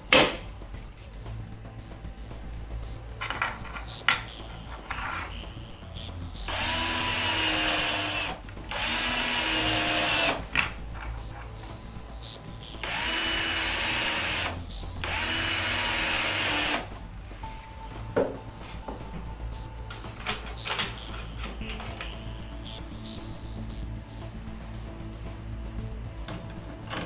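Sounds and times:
cordless drill driving screws: 0:06.5 - 0:10.4, 0:12.8 - 0:16.9.

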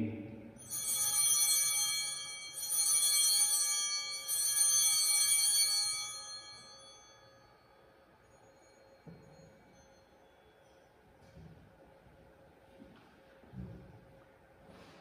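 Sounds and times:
altar bells ringing: 0:00.6 - 0:11.0.

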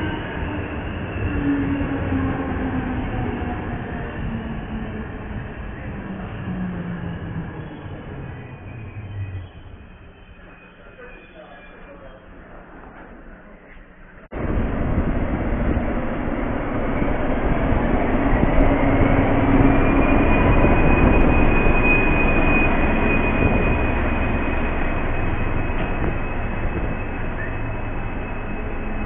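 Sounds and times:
train wheels rumbling on rails: 0:00.0 - 0:29.0
diesel locomotive engine running: 0:13.3 - 0:29.0.

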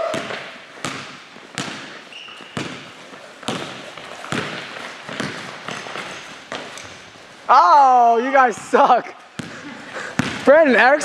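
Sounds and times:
basketball bouncing on gym floor: 0:00.0 - 0:07.1, 0:09.4 - 0:10.6.

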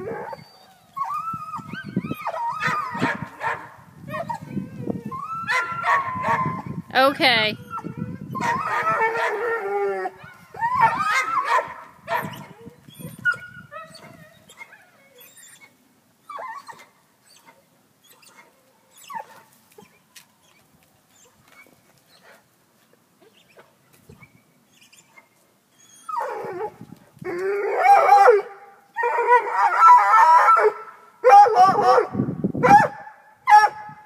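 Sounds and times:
dog whining: 0:10.6 - 0:20.6.

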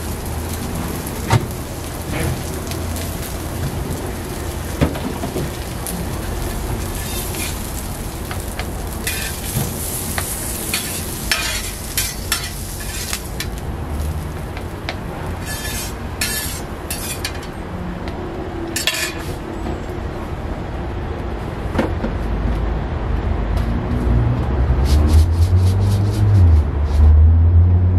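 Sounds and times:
food sizzling on a griddle: 0:00.0 - 0:17.5
metal spatula scraping steel: 0:06.9 - 0:07.6, 0:09.0 - 0:09.6, 0:10.2 - 0:13.4, 0:15.4 - 0:17.5, 0:18.8 - 0:19.4.

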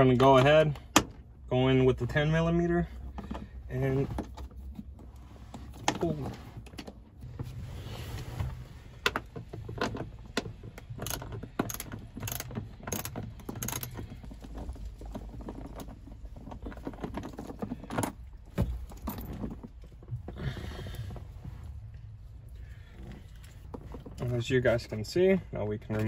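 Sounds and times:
hand ratchet clicking: 0:10.8 - 0:14.0.

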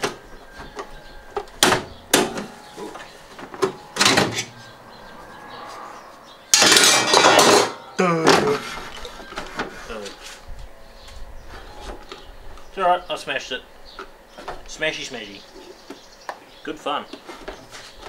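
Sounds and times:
sharp bangs: 0:03.5 - 0:08.0.

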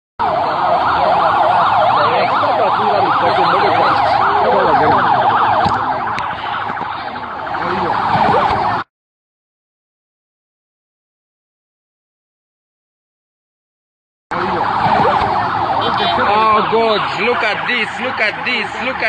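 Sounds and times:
emergency siren wailing: 0:00.2 - 0:08.9, 0:14.3 - 0:19.0.

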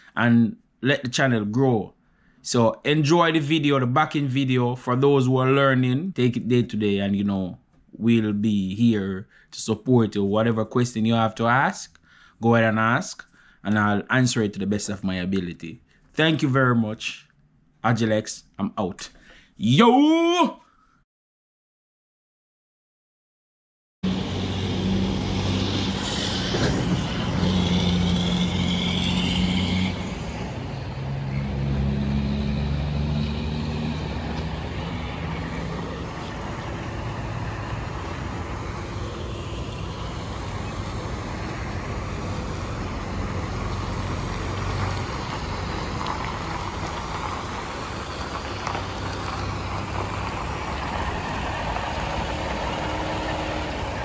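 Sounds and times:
diesel truck engine pulling away: 0:24.0 - 0:54.0.

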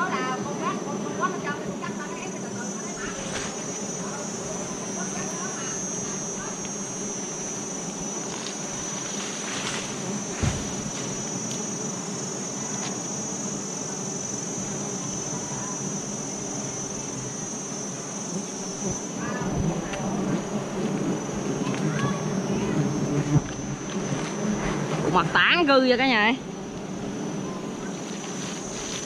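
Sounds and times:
bees buzzing: 0:00.0 - 0:29.0
high insect whine: 0:00.0 - 0:29.0
thump: 0:10.3 - 0:11.1.

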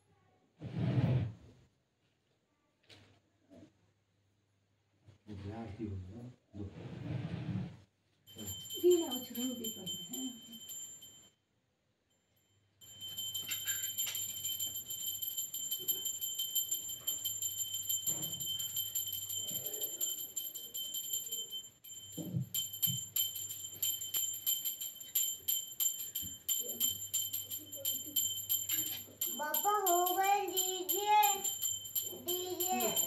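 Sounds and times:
hand bell ringing rapidly: 0:08.3 - 0:11.2, 0:12.8 - 0:33.0.

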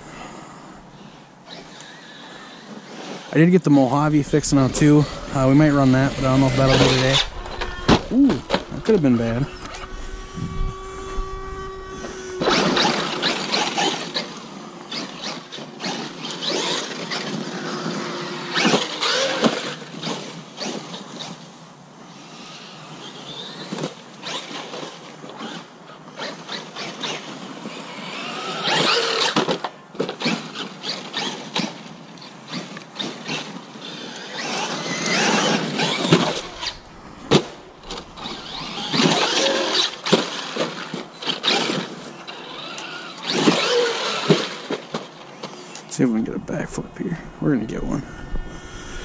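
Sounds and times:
electric motor whining: 0:03.9 - 0:19.9, 0:33.1 - 0:45.1
toy truck knocking over dirt: 0:28.6 - 0:31.8, 0:34.4 - 0:36.7, 0:37.3 - 0:41.9, 0:42.5 - 0:45.5.

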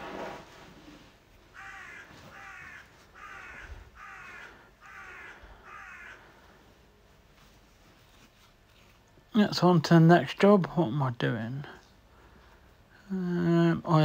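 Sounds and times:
crow cawing: 0:01.5 - 0:06.6.

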